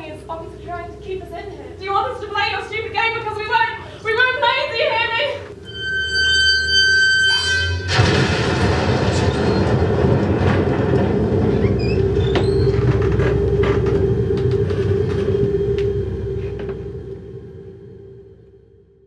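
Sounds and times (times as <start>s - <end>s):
loud steady rumbling: 0.0s - 5.5s, 7.9s - 18.4s
short high squeaks: 5.6s - 7.9s.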